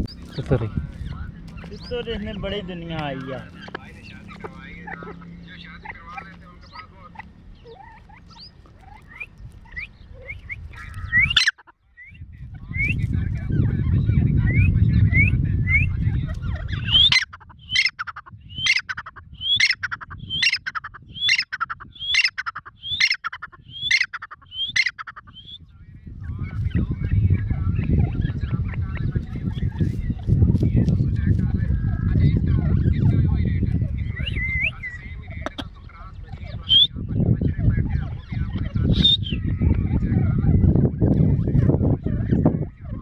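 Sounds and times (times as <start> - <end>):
low rumbling noise: 0.0 - 11.4, 12.0 - 17.8, 25.3 - 43.0
francolin whistled calls: 21.2 - 25.6, 34.1 - 35.0, 36.6 - 36.9, 38.9 - 39.4.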